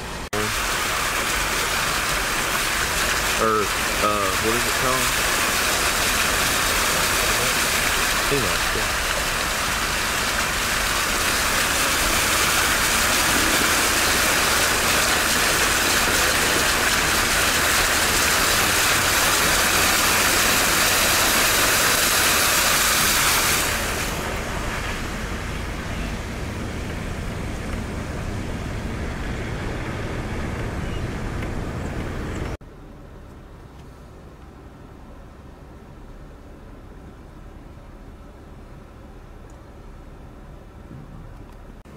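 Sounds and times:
rush of floodwater: 0:00.0 - 0:29.6
low engine rumble: 0:00.0 - 0:41.9.

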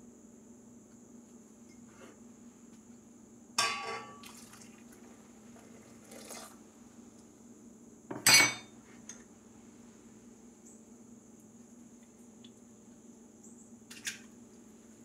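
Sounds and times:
glass cup clinking on steel bowl: 0:03.6 - 0:04.2, 0:08.1 - 0:08.7
milk pouring into bowl: 0:04.2 - 0:06.6.

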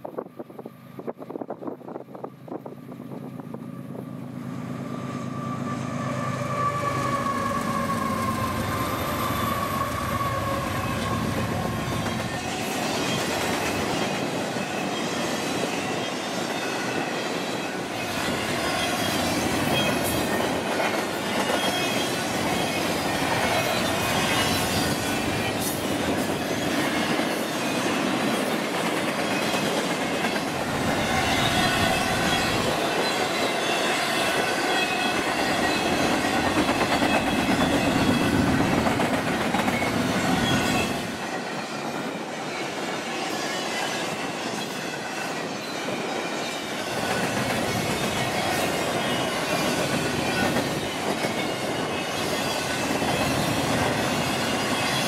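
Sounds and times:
train wheels rumbling on rails: 0:00.0 - 0:55.0
clickety-clack over rail joints: 0:10.8 - 0:15.9, 0:17.3 - 0:55.0.

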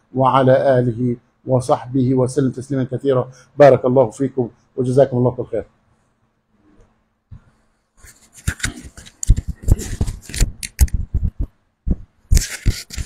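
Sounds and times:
microphone handling noise: 0:07.3 - 0:13.0.

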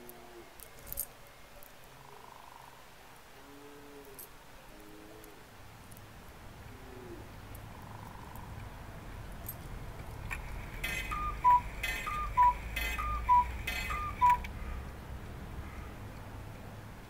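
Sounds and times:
cuckoo clock calling: 0:10.0 - 0:14.8
mechanical rasp: 0:10.4 - 0:14.3.

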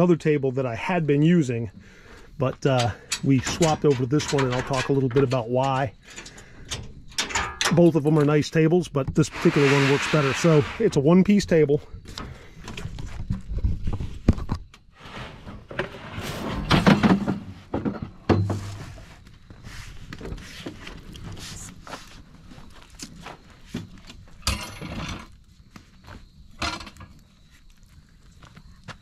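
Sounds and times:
folding table knocks and scrapes: 0:15.0 - 0:19.1.

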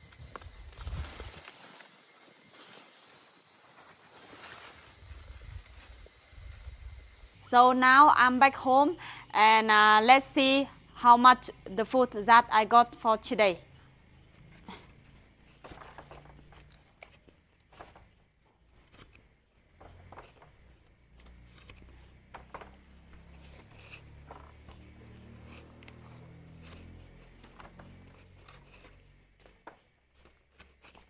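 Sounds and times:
corn husks rustling: 0:00.0 - 0:06.0, 0:14.2 - 0:31.0.

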